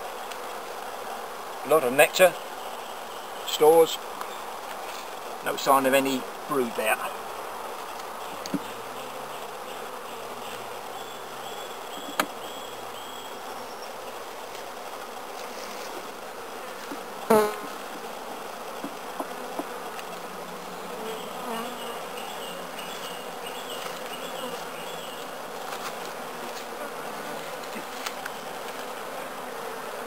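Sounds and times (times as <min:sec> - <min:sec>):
bees buzzing: 0:00.0 - 0:30.0.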